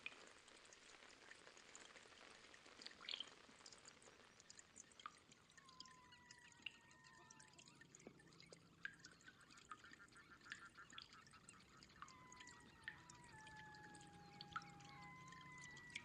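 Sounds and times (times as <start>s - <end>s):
small clicks and ticks: 0.0s - 16.0s
water trickling and dripping: 0.0s - 16.0s
thin whistle-like tone: 11.9s - 16.0s.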